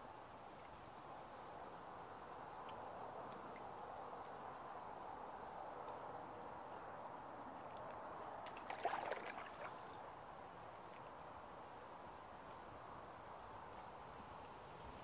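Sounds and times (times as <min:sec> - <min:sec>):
fish splashing and flapping: 0:08.5 - 0:10.0.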